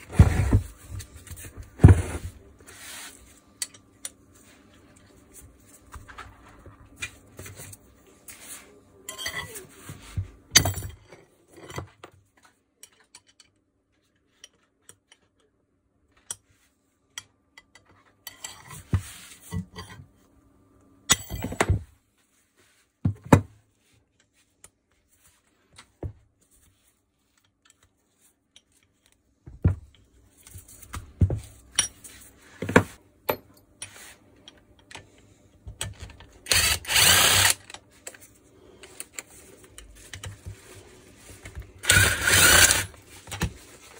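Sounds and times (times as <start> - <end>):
power drill running: 36.5 - 37.7, 41.8 - 43.0.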